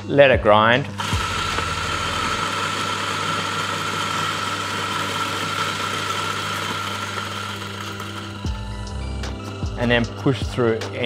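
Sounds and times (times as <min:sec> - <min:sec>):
coffee beans crunching: 0:01.0 - 0:08.5
coffee grinder motor whine: 0:01.0 - 0:11.0.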